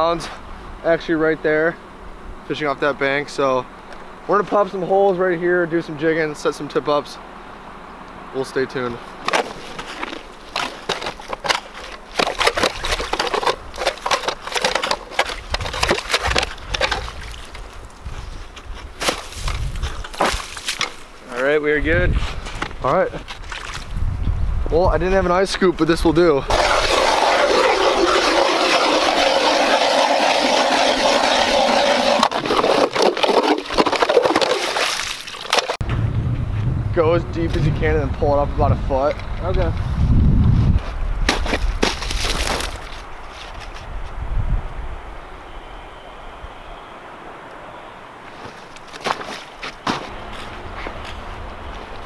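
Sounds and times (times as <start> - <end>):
ice auger crunching into ice: 9.3 - 17.8, 19.0 - 21.0, 26.5 - 35.8, 41.3 - 43.0.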